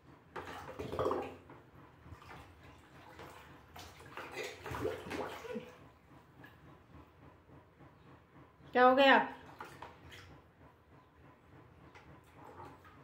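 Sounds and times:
baby splashing water in bucket: 0:00.3 - 0:01.5, 0:02.1 - 0:05.8.

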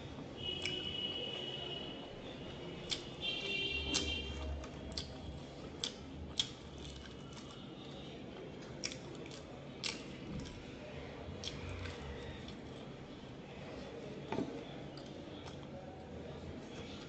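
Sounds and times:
crunchy chewing: 0:02.2 - 0:10.6, 0:11.3 - 0:12.9.

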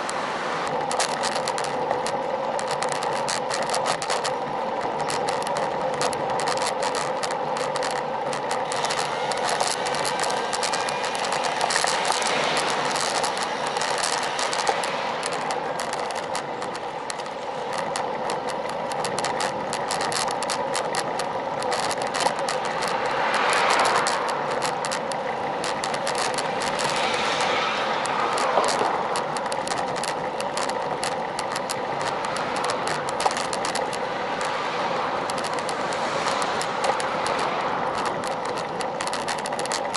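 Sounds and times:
bike tyre hum on asphalt: 0:00.0 - 0:39.9
small rattling clicks: 0:00.0 - 0:39.9
car passing: 0:22.7 - 0:24.7, 0:26.2 - 0:29.2.

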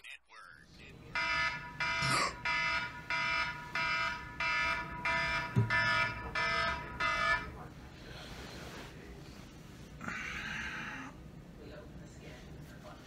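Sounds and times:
electronic alarm beeping: 0:01.1 - 0:07.6.

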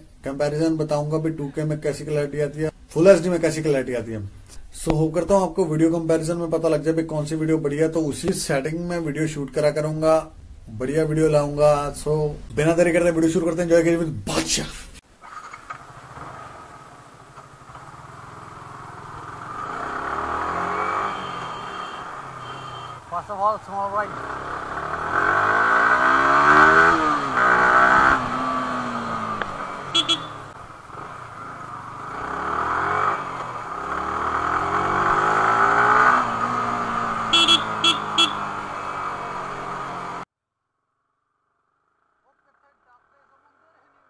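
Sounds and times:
motorcycle engine running: 0:15.7 - 0:40.2.

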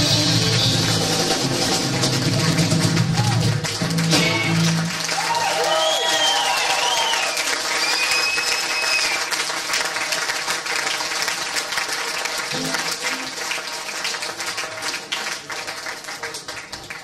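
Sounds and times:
audience applauding and cheering: 0:00.0 - 0:17.0
whistle: 0:05.6 - 0:09.2.

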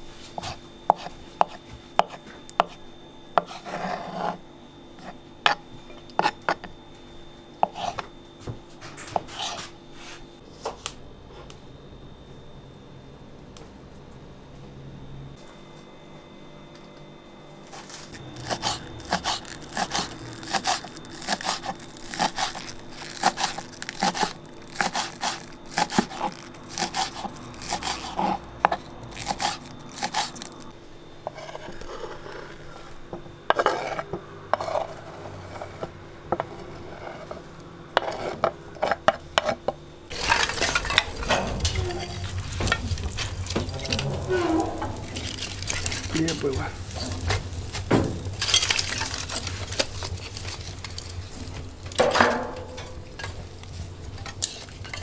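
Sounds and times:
knife chopping on wooden board: 0:00.4 - 0:02.8, 0:23.2 - 0:30.3
wooden sticks clattering: 0:40.1 - 0:55.0.

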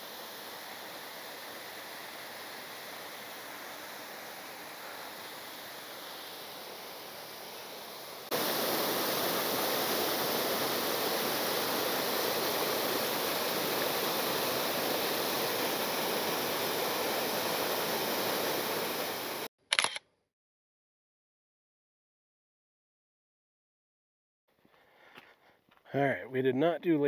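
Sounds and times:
waterfall pouring: 0:00.0 - 0:19.5.

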